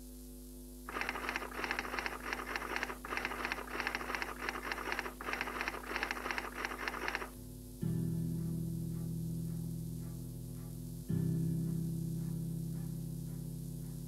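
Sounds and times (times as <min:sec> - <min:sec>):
steady low hum: 0:00.0 - 0:14.0
typewriter key clicks: 0:00.9 - 0:07.3.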